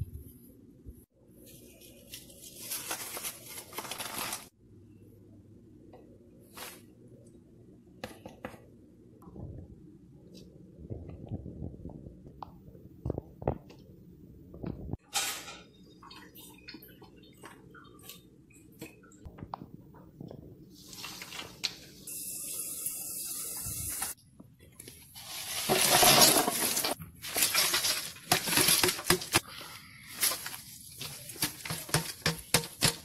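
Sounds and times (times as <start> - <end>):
food scraps dropped into plastic canister: 25.6 - 29.4.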